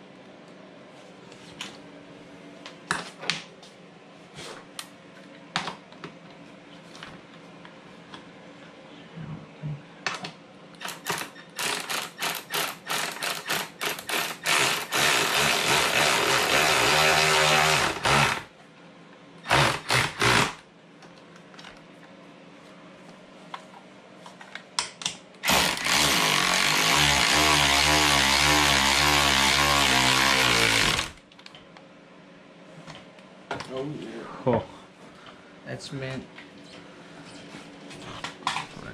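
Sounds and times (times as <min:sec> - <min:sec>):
electric ratchet running: 0:10.8 - 0:18.5, 0:19.5 - 0:20.6, 0:25.4 - 0:31.2.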